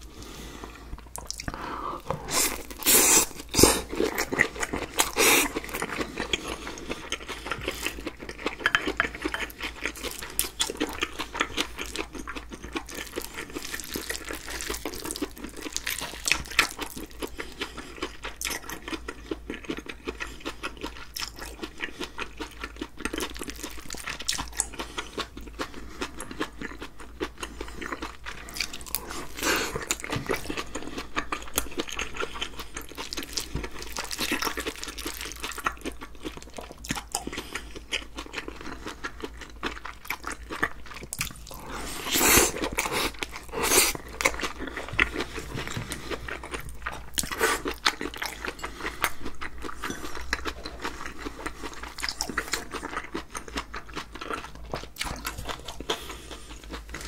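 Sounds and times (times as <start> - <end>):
wet crunchy chewing: 1.0 - 57.0
spoon scraping and tapping bowl: 8.6 - 9.5
spoon stirring in glass bowl: 8.6 - 9.6.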